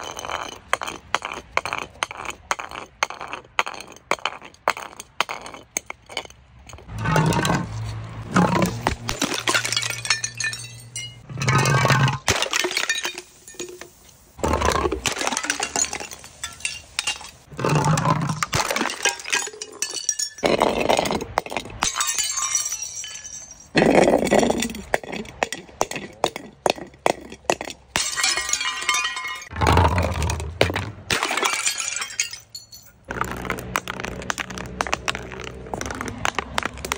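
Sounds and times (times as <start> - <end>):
glass jars tumbling down steps: 0.0 - 36.9
glass breaking: 8.4 - 13.8, 14.6 - 24.8, 27.5 - 36.9.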